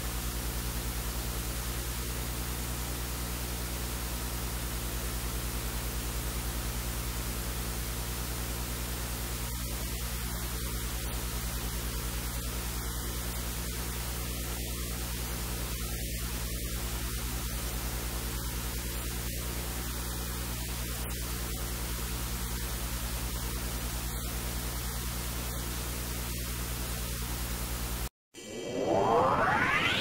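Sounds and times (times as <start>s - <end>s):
low mains hum: 0.0s - 28.1s.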